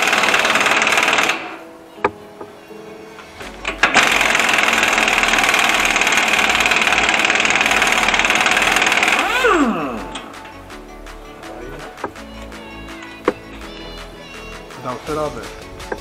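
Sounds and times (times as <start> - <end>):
impact wrench hammering: 3.6 - 10.5.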